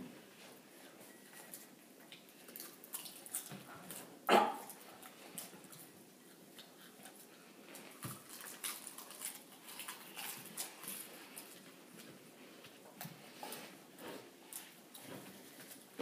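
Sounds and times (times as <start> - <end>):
popcorn crunching: 1.4 - 12.1.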